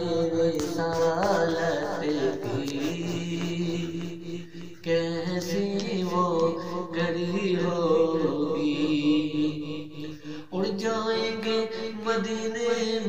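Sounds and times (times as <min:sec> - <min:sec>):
man chanting solo: 0:00.0 - 0:09.8.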